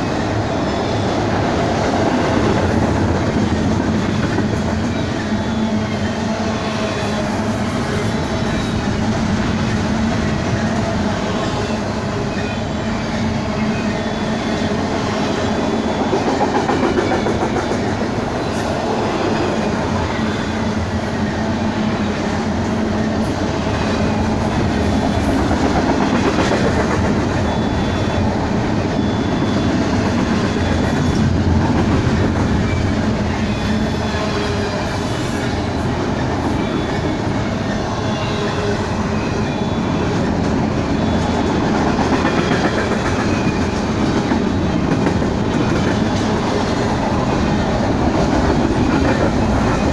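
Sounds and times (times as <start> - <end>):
freight train wheels rumbling: 0.0 - 49.9
high wheel squeal: 10.2 - 22.3, 26.4 - 31.4, 32.5 - 45.0.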